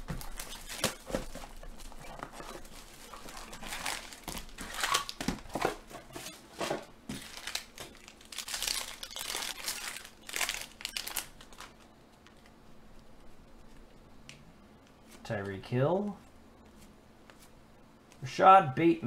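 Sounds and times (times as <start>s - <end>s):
foil wrapper crinkling: 0.0s - 5.6s, 7.1s - 11.9s.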